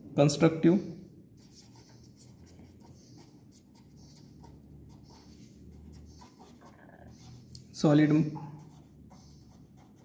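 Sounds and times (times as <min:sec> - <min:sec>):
pen scratching on paper: 0:01.4 - 0:07.6, 0:08.3 - 0:10.0.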